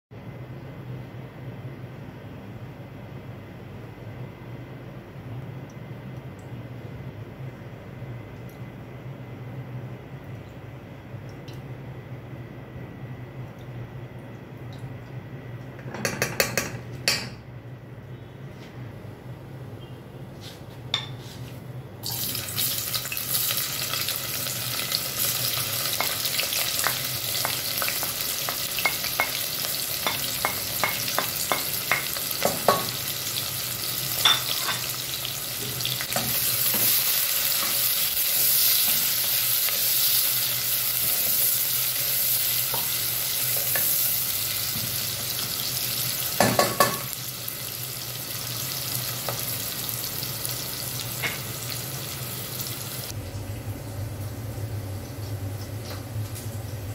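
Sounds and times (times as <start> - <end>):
onions sizzling in oil: 22.0 - 56.7.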